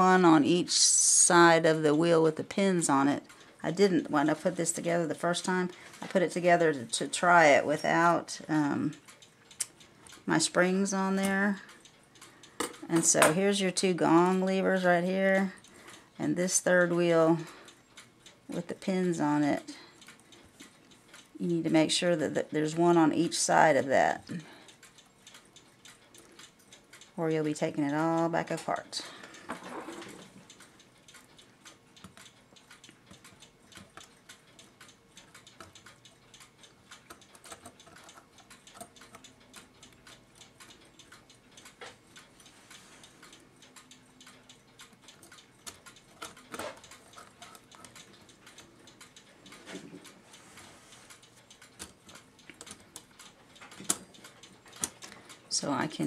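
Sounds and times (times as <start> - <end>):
clicks of clock parts handled: 12.2 - 13.5, 29.2 - 55.4.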